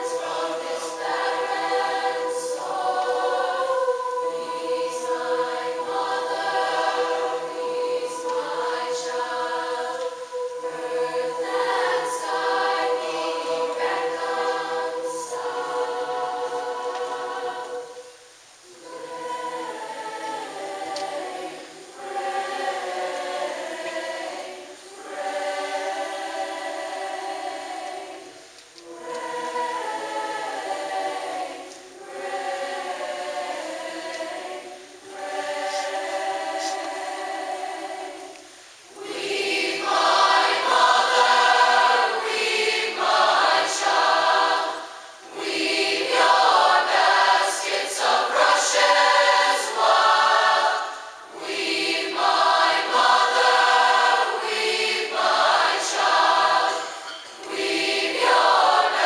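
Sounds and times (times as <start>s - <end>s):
youth choir singing: 0.0s - 59.0s
singers breathing: 38.3s - 38.9s, 44.8s - 45.3s, 50.8s - 51.3s.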